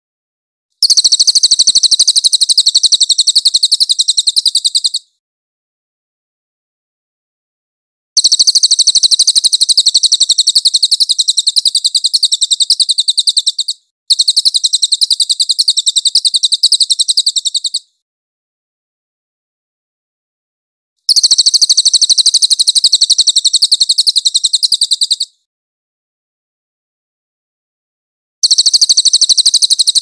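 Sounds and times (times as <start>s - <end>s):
bird rattling trill: 0.8s - 5.0s, 8.2s - 17.9s, 21.1s - 25.3s, 28.4s - 30.0s.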